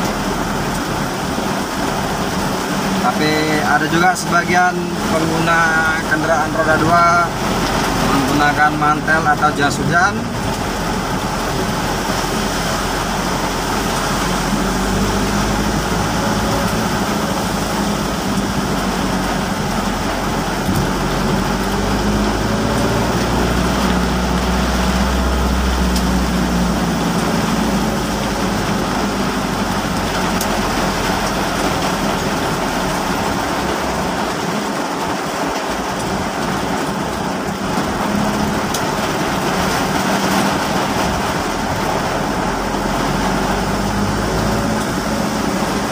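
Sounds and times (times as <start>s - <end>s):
heavy rain hissing: 0.0s - 45.9s
vehicle engine hum: 0.0s - 45.9s.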